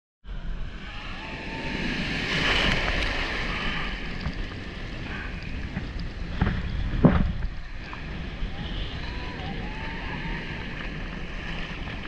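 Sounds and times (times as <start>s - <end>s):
surf breaking and washing: 0.3s - 12.0s
wind on microphone: 0.3s - 12.0s
sharp water splashes: 2.0s - 6.2s.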